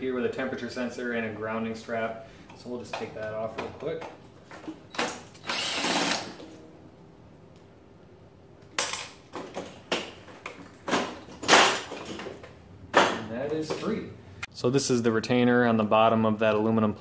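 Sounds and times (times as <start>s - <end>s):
cordless drill running: 5.4s - 6.4s
metal knocks and clunks: 9.3s - 13.9s.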